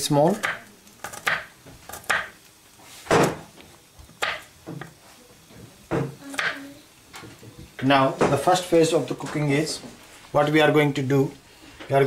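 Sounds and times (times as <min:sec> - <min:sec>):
knife chopping on wooden board: 0:00.4 - 0:02.4, 0:04.2 - 0:04.9.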